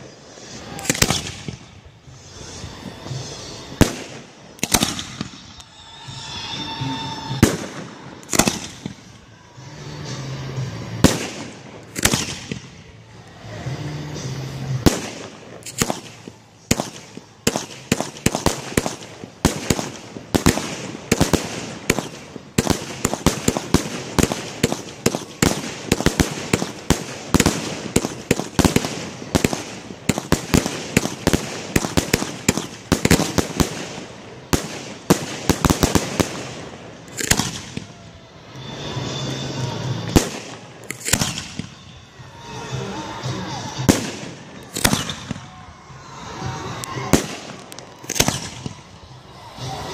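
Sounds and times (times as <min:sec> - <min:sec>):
fireworks shell bursts: 0:34.8 - 0:41.9.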